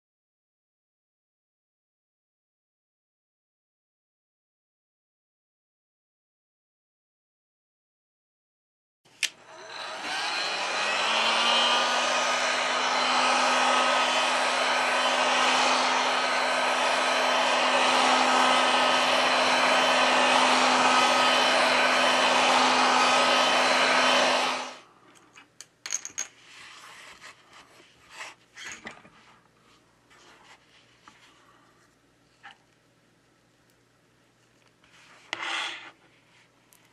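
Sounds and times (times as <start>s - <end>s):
hot air gun blowing: 9.2s - 24.8s.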